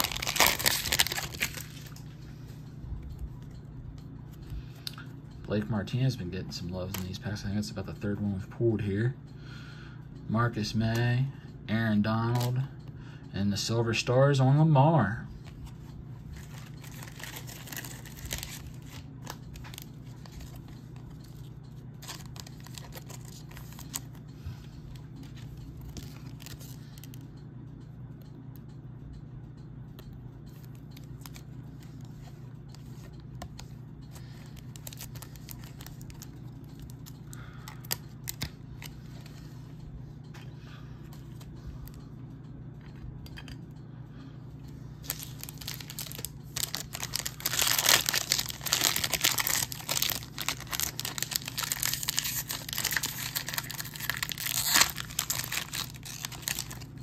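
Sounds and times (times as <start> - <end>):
foil wrappers tearing and crinkling: 0.0 - 2.0, 16.4 - 20.5, 22.0 - 24.2, 34.5 - 36.9, 45.0 - 57.0
cards being handled: 0.0 - 2.1, 15.4 - 24.2, 30.5 - 39.6, 45.0 - 57.0
steady low hum: 0.0 - 57.0.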